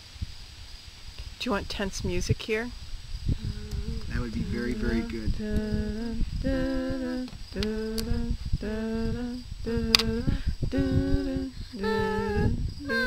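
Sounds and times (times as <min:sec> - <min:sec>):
person humming: 0:03.4 - 0:13.0.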